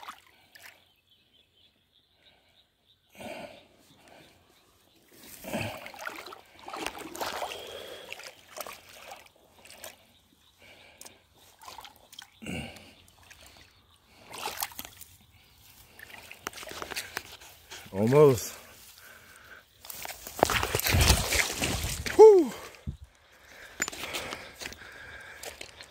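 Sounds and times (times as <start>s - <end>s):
feet wading through shallow water: 5.2s - 12.4s, 13.0s - 17.9s, 18.5s - 22.8s.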